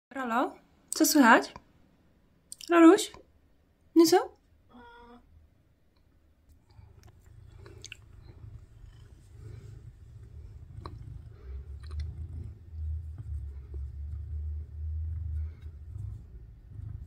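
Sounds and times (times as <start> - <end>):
cat purring: 6.5 - 17.0
hand rubbing fur: 7.2 - 17.0.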